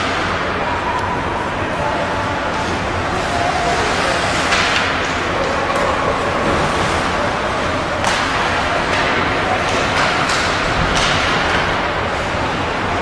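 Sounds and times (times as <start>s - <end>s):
hockey sticks and puck clacking: 4.4s - 6.0s, 8.0s - 11.8s.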